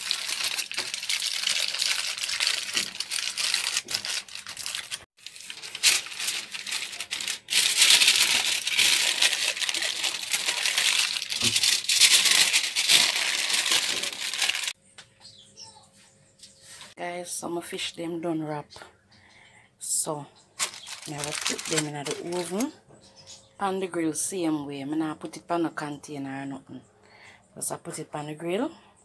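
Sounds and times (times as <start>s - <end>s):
aluminium foil crinkling: 0.0s - 14.8s, 20.6s - 22.7s.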